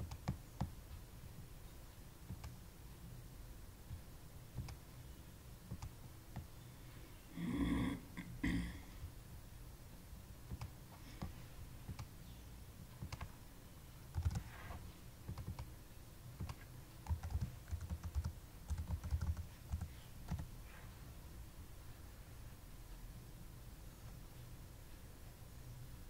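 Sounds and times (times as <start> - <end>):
typing on computer keyboard: 0.0 - 0.7, 13.0 - 13.3, 14.1 - 14.5, 15.3 - 15.7, 16.4 - 20.5.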